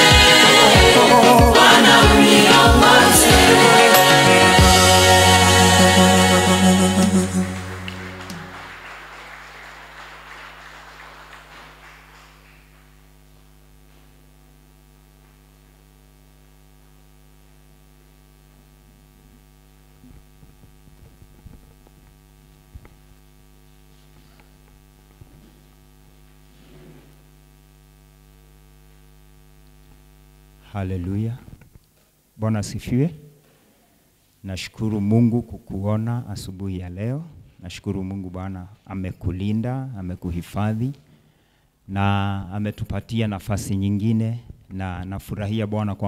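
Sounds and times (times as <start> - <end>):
choir singing: 0.0 - 8.8
mains hum: 0.0 - 46.0.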